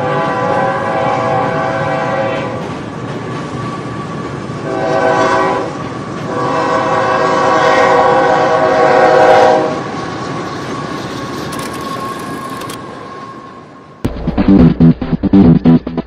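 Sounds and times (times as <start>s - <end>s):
train horn blasts: 0.0s - 2.6s, 4.6s - 9.8s
moving train rumble and clatter: 0.0s - 14.6s.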